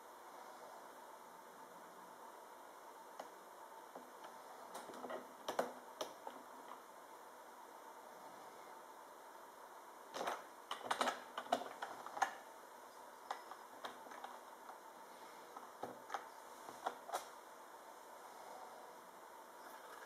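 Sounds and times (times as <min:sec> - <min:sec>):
laptop keyboard typing: 0:10.2 - 0:12.5, 0:13.2 - 0:14.8.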